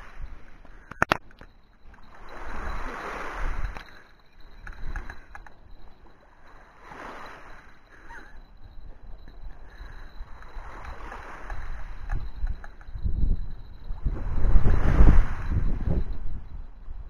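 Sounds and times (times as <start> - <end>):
wind rumble on microphone: 0.0 - 17.0
waves on pebble shore: 2.0 - 4.1, 6.4 - 8.3, 9.7 - 12.9, 13.9 - 16.2.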